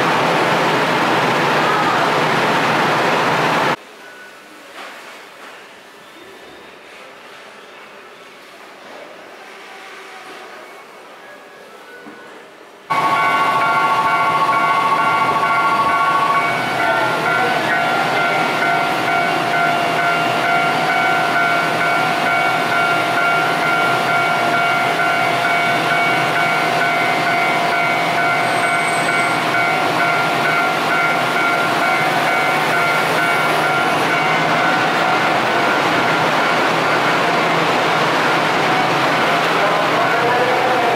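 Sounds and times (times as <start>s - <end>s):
tram equipment rushing noise: 0.0s - 3.8s, 12.9s - 40.9s.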